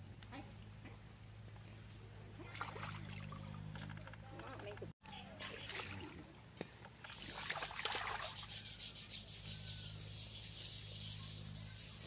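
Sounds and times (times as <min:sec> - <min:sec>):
rough scrubbing by hand: 0:07.0 - 0:12.0.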